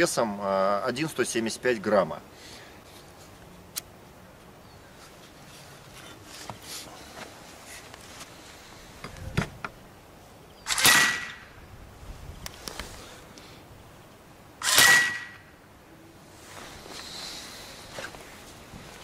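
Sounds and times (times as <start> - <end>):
air rifle shots: 10.7 - 11.5, 14.6 - 15.5.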